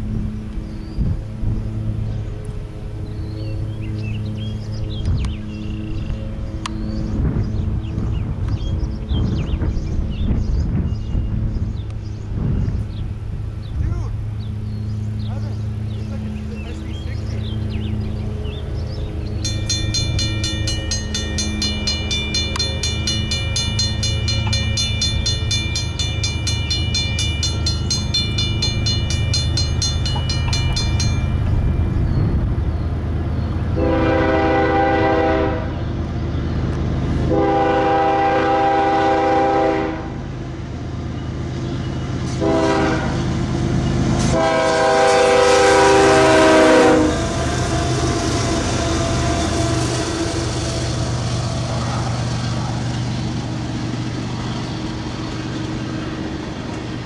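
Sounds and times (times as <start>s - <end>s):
diesel engines rumbling: 0.0s - 57.0s
rapid repeating ringing: 19.4s - 32.1s
locomotive horn blasts: 33.7s - 35.8s, 37.2s - 40.3s, 42.3s - 43.3s, 44.2s - 51.2s.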